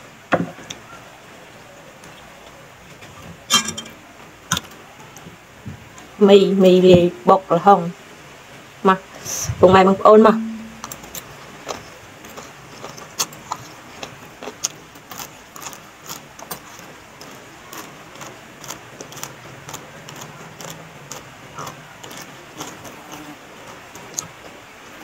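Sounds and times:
crunching and chewing green beans: 10.8s - 25.0s.

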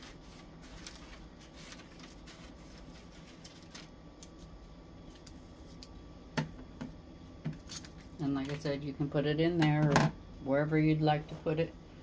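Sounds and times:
paper rustling: 0.0s - 4.5s.

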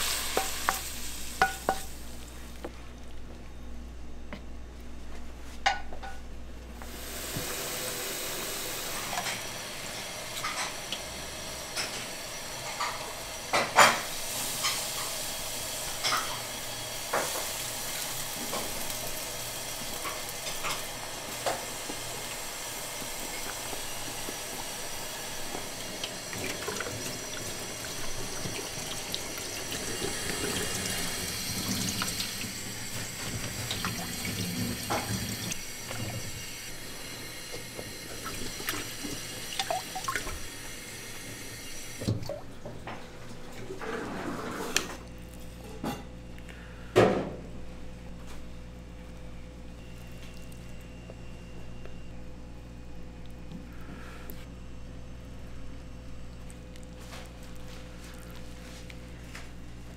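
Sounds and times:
steady hiss: 0.0s - 2.6s.

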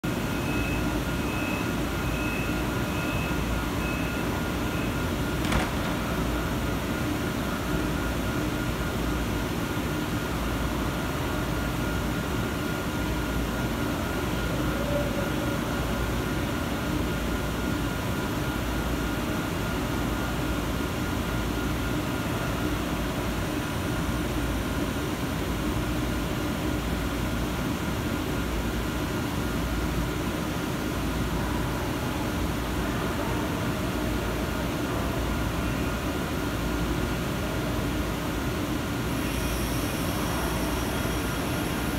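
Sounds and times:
train air conditioning hum: 0.0s - 41.9s
quick warning beeps: 0.3s - 5.1s.

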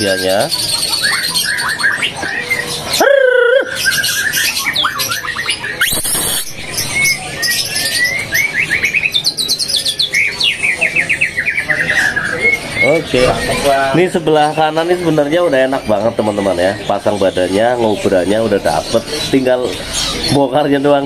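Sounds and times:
songbird whistling and trilling: 0.0s - 13.7s.

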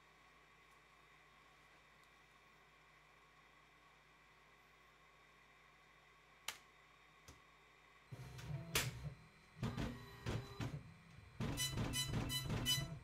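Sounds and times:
dot matrix printer feeding paper: 8.2s - 13.0s.

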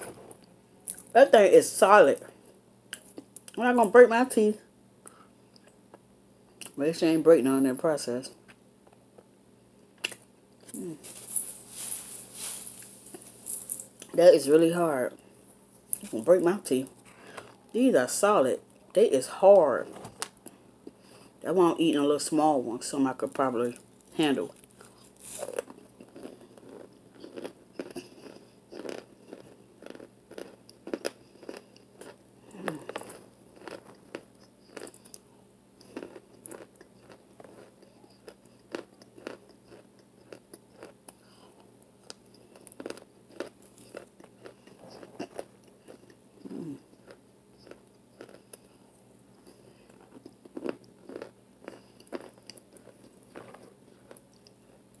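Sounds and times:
biting and chewing crunchy food: 23.6s - 55.0s.

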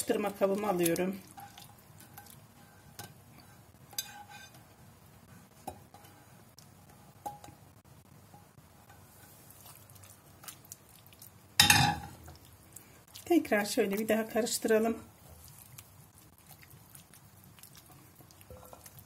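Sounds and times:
spatula scraping pan: 1.3s - 4.8s
cookware clatter: 11.6s - 12.2s.

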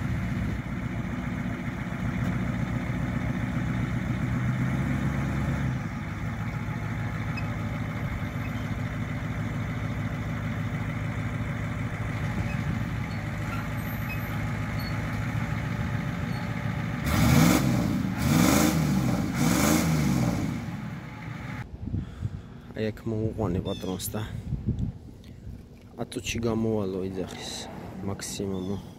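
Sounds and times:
engine revving: 0.0s - 10.1s, 14.4s - 21.6s
truck engine idling: 0.0s - 21.6s.

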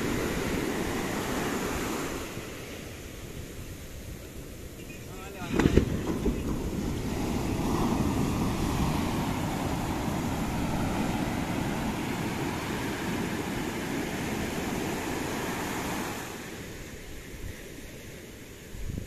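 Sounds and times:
ocean surf breaking: 0.0s - 18.8s
wind rumble on microphone: 0.0s - 19.0s.

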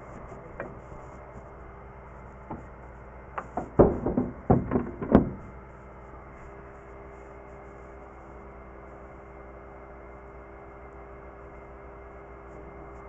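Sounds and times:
low steady hum: 0.0s - 13.0s
knocks on sheet metal: 3.4s - 5.5s.

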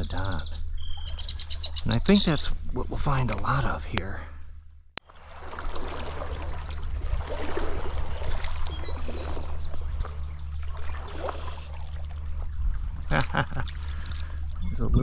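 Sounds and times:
low rumble: 0.0s - 15.0s
stream water rushing: 5.1s - 9.6s.

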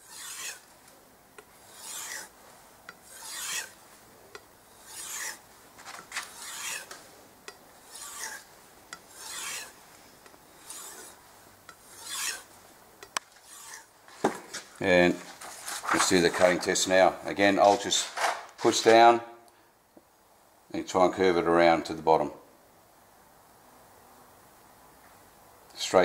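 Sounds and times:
knife stroked on leather strop: 7.9s - 8.5s.

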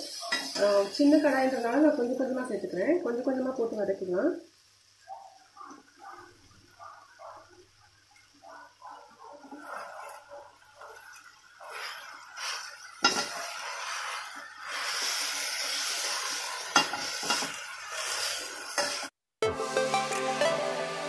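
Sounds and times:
hot oil sizzling: 0.0s - 19.8s
ladle scraping a pan: 9.5s - 10.3s, 11.0s - 19.1s
metal clinking on pan: 13.0s - 13.4s
background music: 19.4s - 21.0s.

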